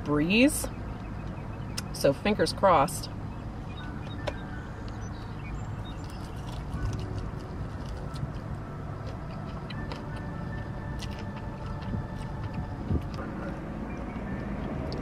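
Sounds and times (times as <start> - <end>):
low rumble: 0.0 - 15.0
person chewing: 5.8 - 13.6.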